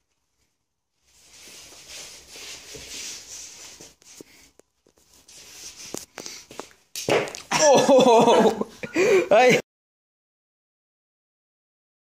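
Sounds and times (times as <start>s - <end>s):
rustling and scuffling: 0.0s - 7.5s.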